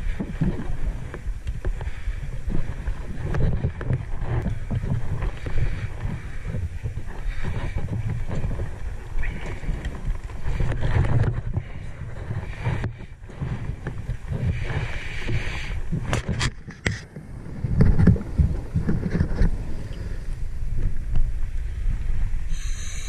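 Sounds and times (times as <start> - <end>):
wind buffeting microphone: 0.0 - 23.0.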